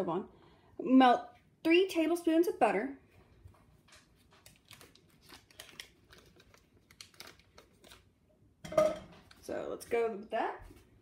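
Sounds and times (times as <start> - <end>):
paper wrapper crinkling: 3.9 - 8.2.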